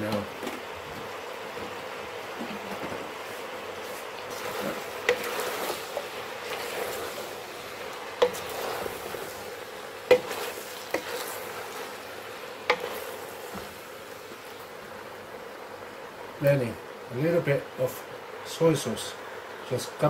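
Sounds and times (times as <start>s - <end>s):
stir fry sizzling: 0.0s - 20.0s
wooden spoon knocking pot: 8.2s - 8.6s, 10.1s - 11.2s, 12.6s - 13.0s.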